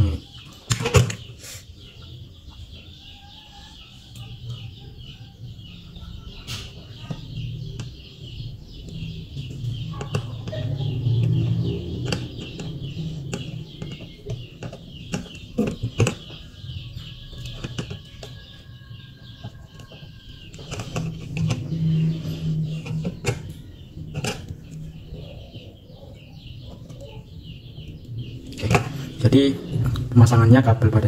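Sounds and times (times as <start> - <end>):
high chirping: 0.0 - 31.0.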